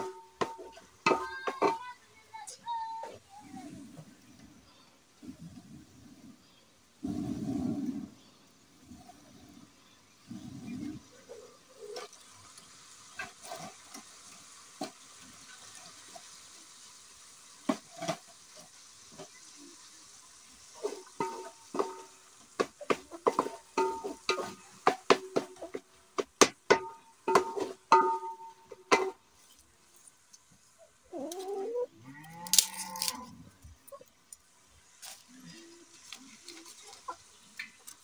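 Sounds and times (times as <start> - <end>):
spoon knocking metal pot: 0.0 - 1.8, 20.8 - 22.1, 23.2 - 29.2
firewood knocks: 22.6 - 29.2.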